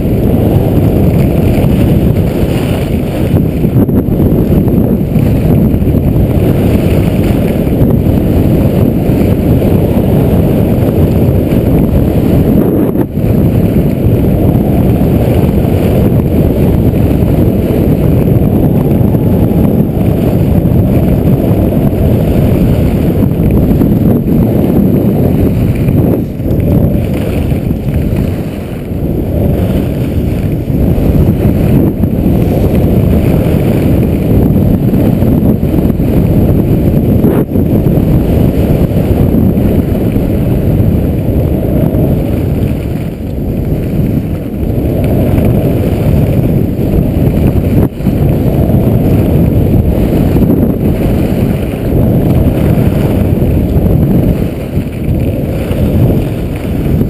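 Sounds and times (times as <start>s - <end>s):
wind rumbling on microphone: 0.0s - 57.0s.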